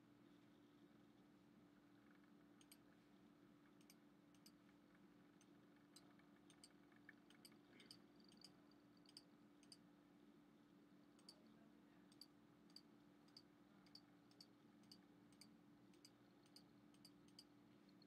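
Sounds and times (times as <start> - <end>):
faint low hum: 0.0 - 18.0
faint sharp clicks: 2.1 - 2.9, 3.6 - 9.8.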